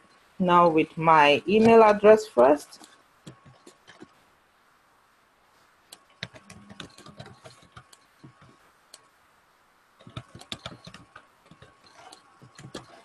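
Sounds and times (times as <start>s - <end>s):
keyboard keys clicking: 5.9s - 8.5s, 10.0s - 13.0s.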